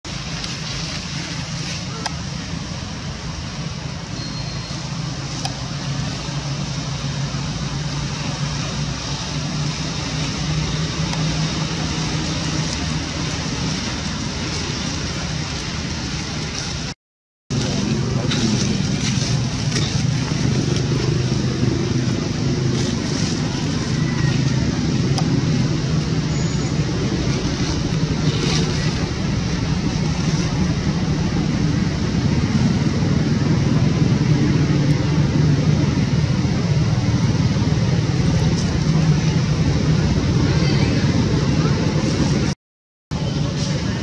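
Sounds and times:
constant hiss: 0.1 - 42.5
low hum: 17.5 - 44.0.

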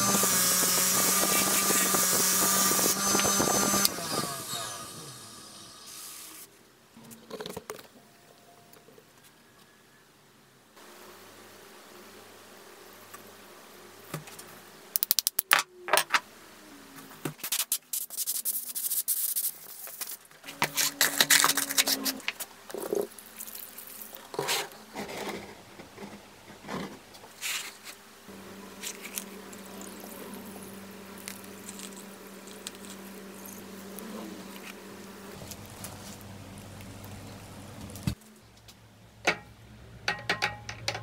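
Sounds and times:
wire brushes scraping on wood: 0.0 - 4.7, 17.4 - 28.0, 28.6 - 37.3
steady low hum: 28.0 - 40.8.

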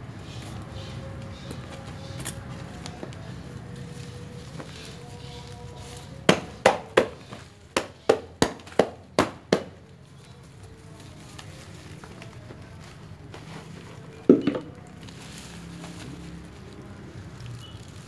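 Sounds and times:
knocks on plastic flowerpot: 14.3 - 14.8.

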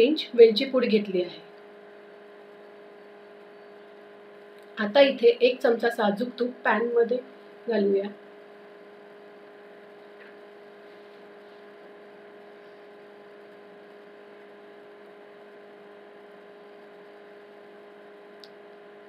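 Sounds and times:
electrical hum: 0.0 - 19.0.

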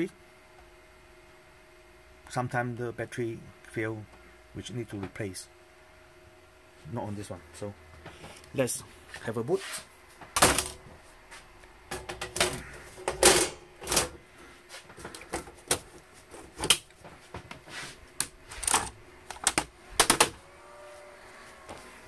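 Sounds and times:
metal cover clicks and clunks: 11.9 - 14.2.

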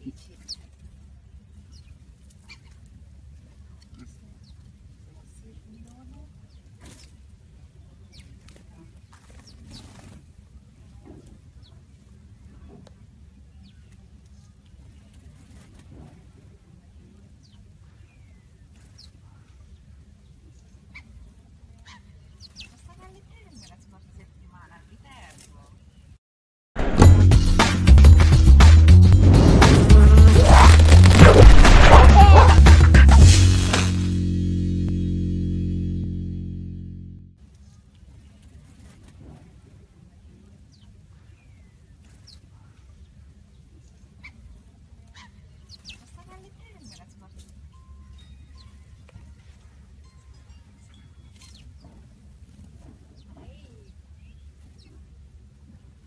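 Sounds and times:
sparrows chirping: 1.6 - 2.8, 7.9 - 8.4, 17.4 - 24.2, 45.2 - 49.5, 50.8 - 52.0, 53.2 - 55.0
low steady rumble: 29.0 - 37.4.

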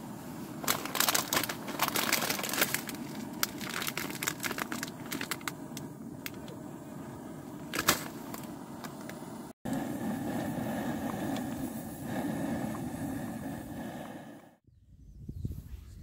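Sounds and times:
steady low rumble: 0.0 - 15.0
crinkling and crackling: 0.4 - 6.6, 7.7 - 9.2.

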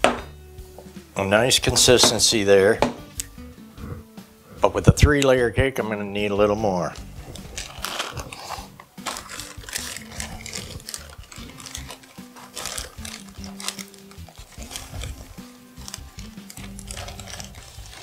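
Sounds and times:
plastic bag crinkling: 6.9 - 18.0.

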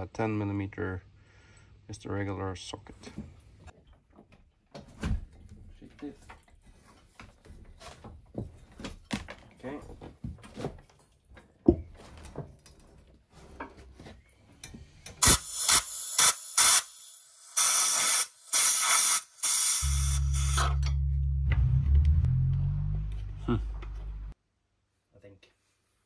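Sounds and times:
air blow gun hissing bursts: 15.2 - 20.8.

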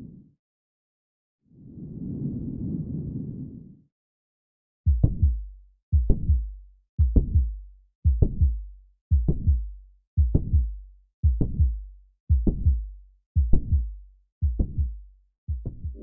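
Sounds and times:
heartbeat thumps: 4.9 - 16.0
heart murmur: 15.5 - 16.0.

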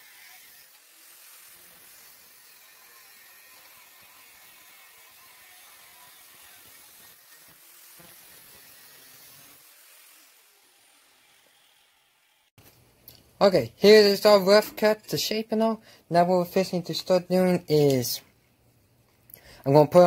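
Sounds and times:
angle grinder cutting metal: 0.0 - 12.5.

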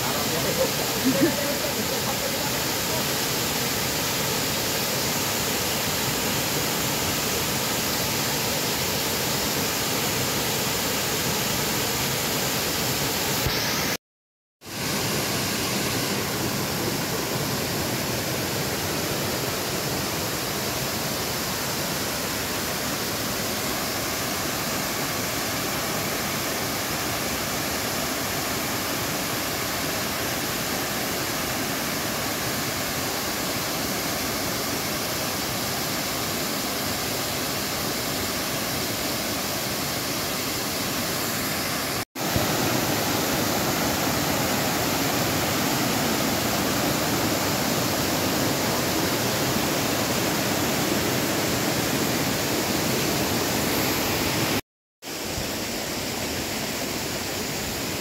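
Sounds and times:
waterfall rushing: 0.0 - 14.0, 14.7 - 58.0.

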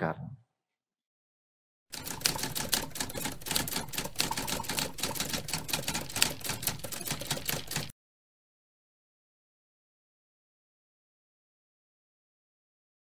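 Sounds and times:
typewriter key clacks: 2.0 - 7.9.

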